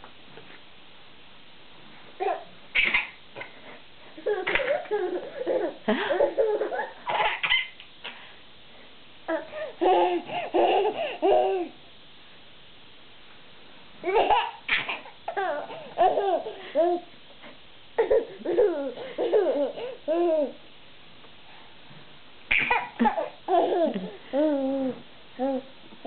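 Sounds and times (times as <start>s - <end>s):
baby laughing and babbling: 2.2s - 3.5s, 4.2s - 8.2s, 9.3s - 11.8s, 14.0s - 17.1s, 18.0s - 20.6s, 22.5s - 25.7s.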